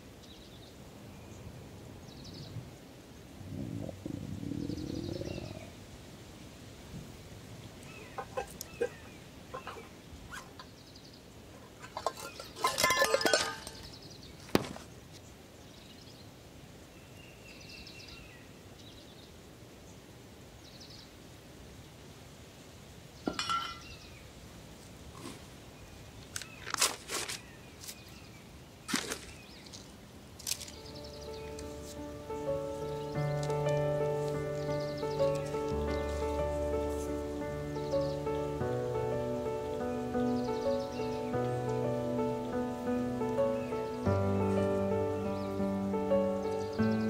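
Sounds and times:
tin cans clinking together: 11.7 - 13.9, 23.3 - 23.8.

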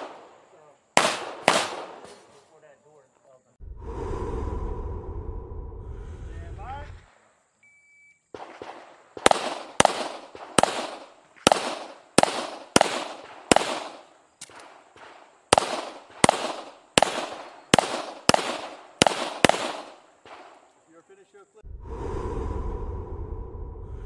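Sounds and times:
pistol shots with echo: 0.0 - 0.4, 1.0 - 2.2, 8.3 - 20.6.

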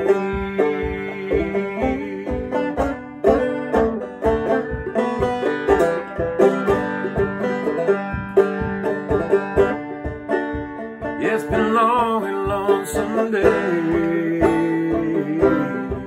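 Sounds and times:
person singing without words: 0.0 - 3.7, 11.1 - 16.0
banjo picking: 0.0 - 16.0.

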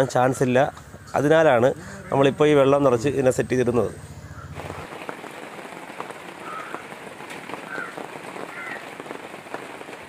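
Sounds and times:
rain patter: 4.2 - 10.0.

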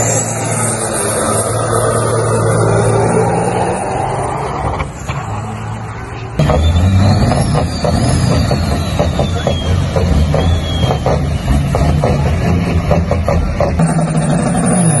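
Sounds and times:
distant truck engine: 0.0 - 15.0
truck engine straining: 0.0 - 15.0
high whistle: 6.4 - 11.7.

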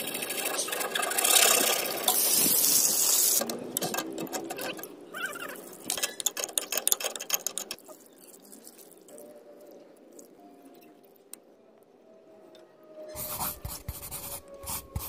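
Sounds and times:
pipe fittings clicking: 0.5 - 5.0, 5.8 - 7.9.

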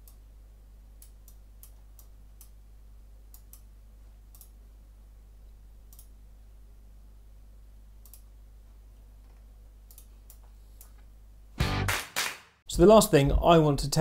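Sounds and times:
faint low hum: 0.0 - 11.6
computer mouse clicking: 5.9 - 6.1, 8.0 - 8.3, 9.9 - 11.0.

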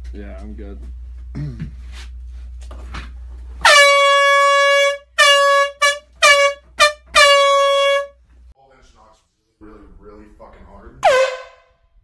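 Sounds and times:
air horn blasts: 3.6 - 8.2, 11.0 - 11.8.

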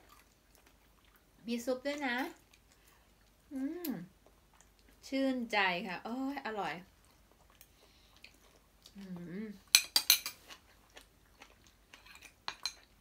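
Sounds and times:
cutlery clinking on ceramic plate: 9.7 - 10.4, 12.0 - 12.9.

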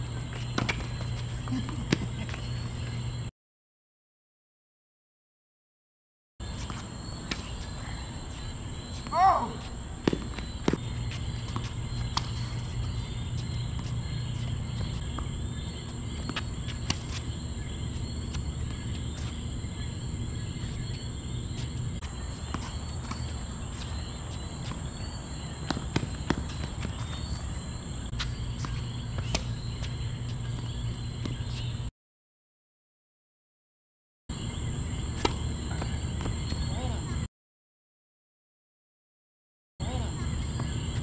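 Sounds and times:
high insect drone: 6.4 - 31.7, 34.4 - 37.1
tennis ball struck by racquets: 10.0 - 12.4.

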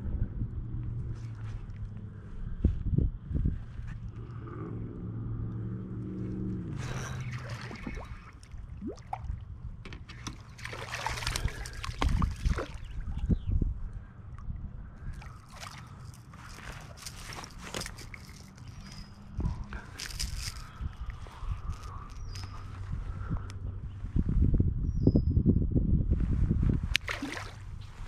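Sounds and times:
water sloshing against kayak: 7.1 - 13.3, 15.0 - 22.5.

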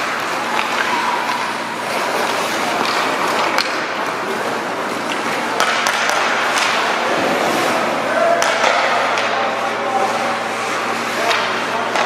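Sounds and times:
hockey sticks and puck clacking: 0.0 - 12.0
arena crowd: 5.4 - 12.0.

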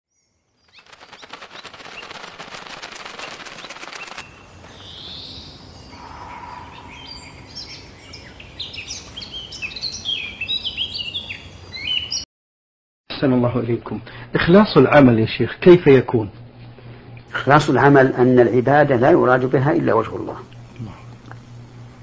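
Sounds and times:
birds chirping: 0.6 - 12.2
fast even rattle: 0.7 - 4.4.

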